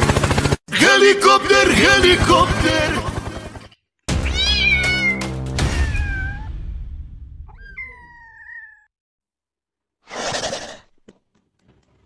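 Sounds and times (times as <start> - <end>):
kitten meowing: 4.2 - 6.5, 7.5 - 8.9.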